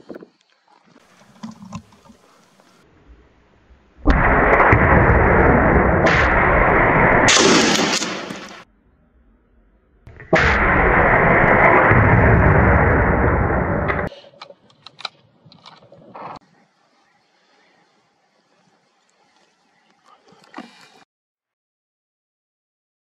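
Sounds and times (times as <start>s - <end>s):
rifle shots: 4.1s - 8.6s, 10.3s - 14.1s.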